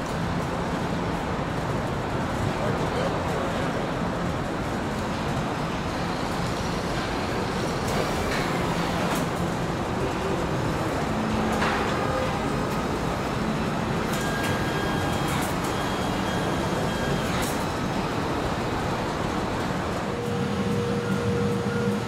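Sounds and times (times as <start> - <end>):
clicks and clanks: 11.3 - 12.8.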